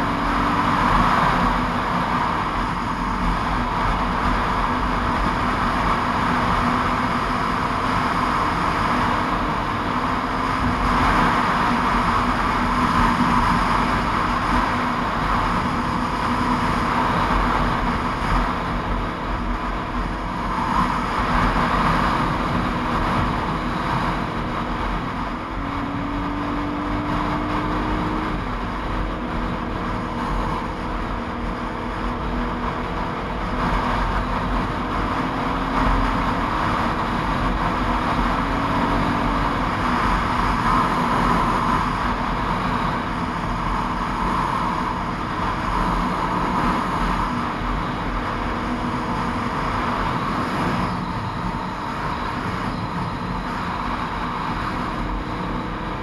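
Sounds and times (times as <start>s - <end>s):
motorcycle engine drone: 0.0s - 56.0s
road noise: 0.0s - 56.0s
wind noise: 0.0s - 56.0s.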